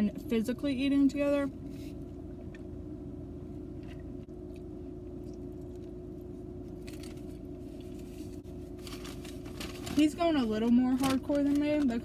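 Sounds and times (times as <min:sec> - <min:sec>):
car engine hum inside cabin: 0:00.0 - 0:12.0.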